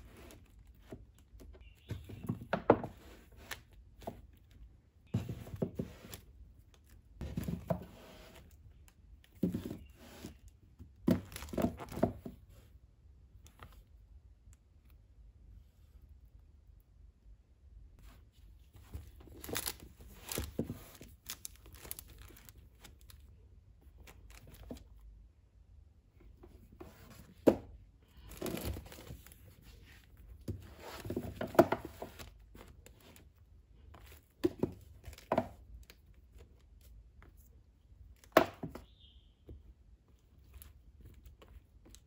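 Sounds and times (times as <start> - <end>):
books rubbing and scraping on shelf: 5.1 - 6.4, 7.2 - 8.6, 9.4 - 10.5, 28.3 - 33.2.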